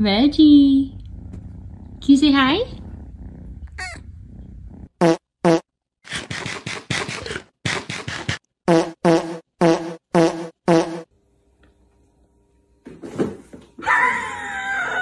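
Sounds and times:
cat purring: 0.3 - 5.0
comic fart sound effects: 4.8 - 11.1.

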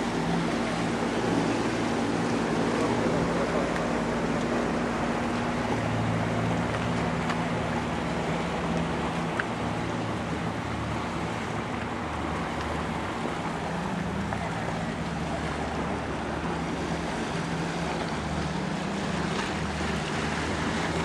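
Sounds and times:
motorboat engines droning: 0.0 - 21.0.

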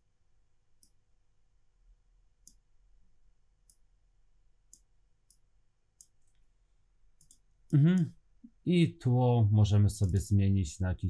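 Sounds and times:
computer mouse clicks: 2.4 - 2.6, 3.6 - 3.9, 4.7 - 5.4, 6.0 - 6.4, 7.2 - 7.5, 10.0 - 10.3.

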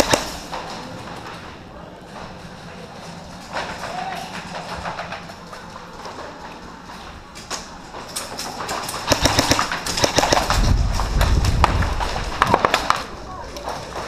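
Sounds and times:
airsoft rifle firing bursts: 0.0 - 0.5, 9.0 - 10.7.

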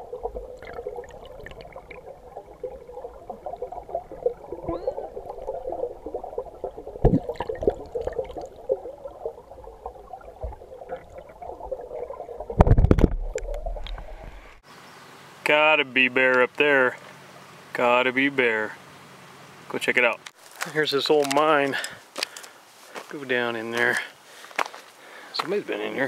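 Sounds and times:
water gurgling and babbling: 0.0 - 14.6.

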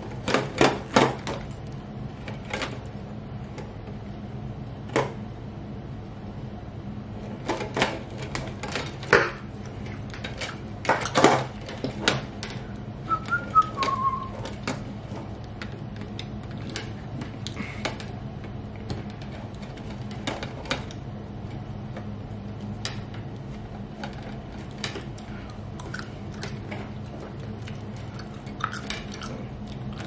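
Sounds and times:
low steady hum: 0.0 - 30.0
person whistling: 13.1 - 14.4.

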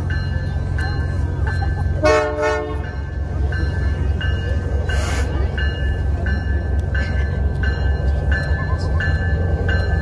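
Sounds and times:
crossing bell dinging: 0.0 - 10.0
train rumble: 0.0 - 10.0
locomotive air horn blast: 2.0 - 2.8.

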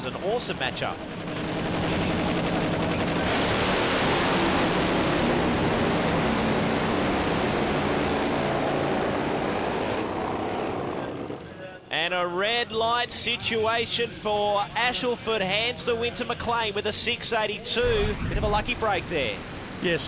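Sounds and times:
racing motorcycles at full throttle: 1.0 - 11.5.

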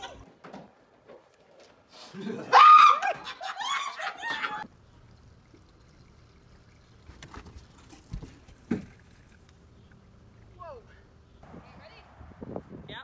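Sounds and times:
woman shrieking and laughing: 2.2 - 4.6.

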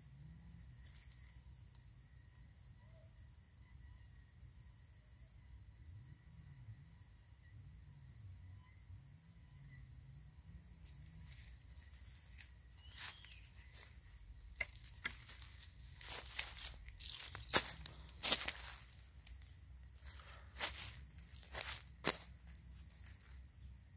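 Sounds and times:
dry leaves and twigs rustling: 0.6 - 1.7, 10.8 - 23.6
insect trilling: 10.6 - 23.9
twigs snapping: 12.3 - 19.4.

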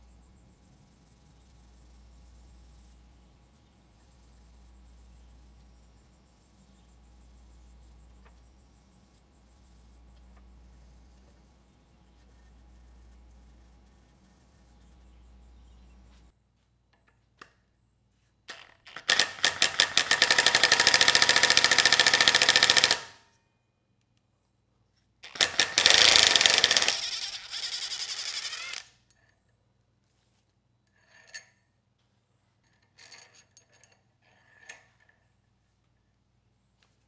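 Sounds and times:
impact wrench hammering: 18.5 - 23.1, 25.3 - 27.0.

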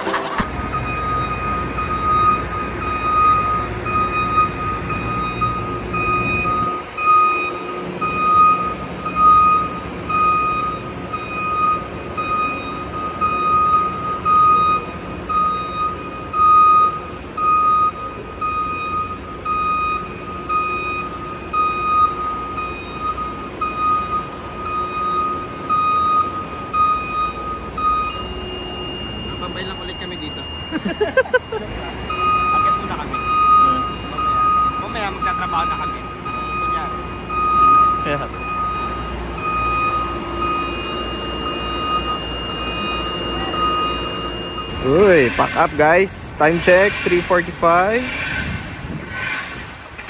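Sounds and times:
motion alarm beeping: 0.4 - 47.6.

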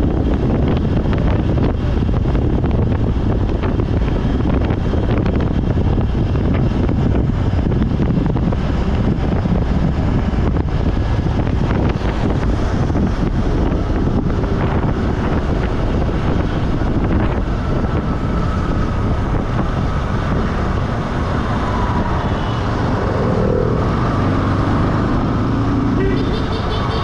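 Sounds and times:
passing traffic: 0.0 - 27.0
road and engine rumble: 0.0 - 27.0
wind buffeting microphone: 0.0 - 27.0.

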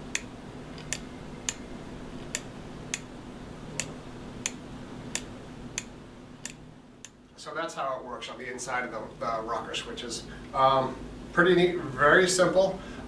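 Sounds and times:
float switch clicking: 0.1 - 3.1, 3.8 - 7.2.

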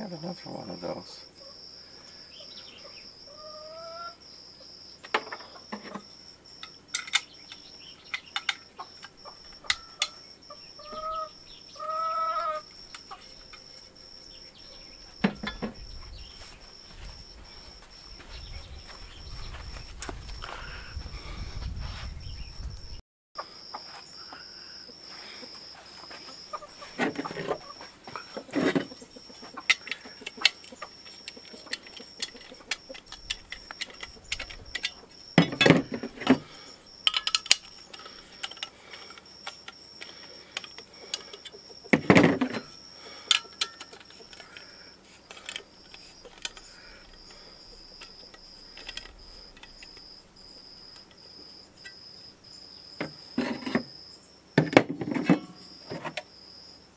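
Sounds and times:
high insect trill: 0.0 - 56.9
steel tubing and tools clinking: 6.6 - 10.2, 12.8 - 13.9, 15.0 - 15.8, 26.9 - 50.1, 51.8 - 52.0, 53.0 - 53.9, 54.6 - 56.2.

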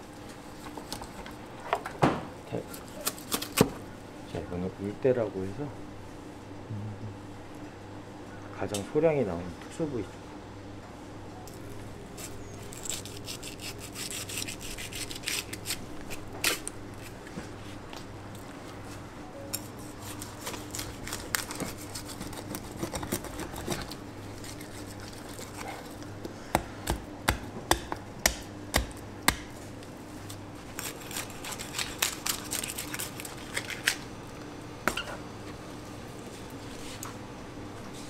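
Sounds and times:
knife scraping against bone: 12.2 - 17.2, 19.6 - 26.1, 30.7 - 34.0
sharp knocks of blade on bone: 26.6 - 29.5.

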